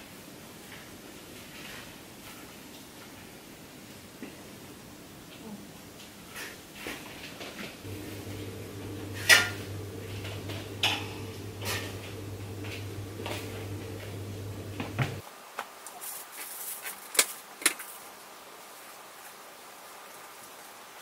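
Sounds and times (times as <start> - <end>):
steady low hum: 7.8 - 15.2.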